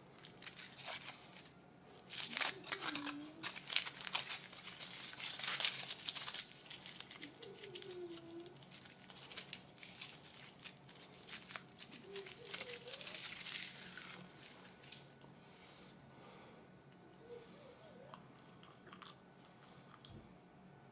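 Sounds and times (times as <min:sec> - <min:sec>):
foil wrapper crinkling: 0:00.1 - 0:15.3.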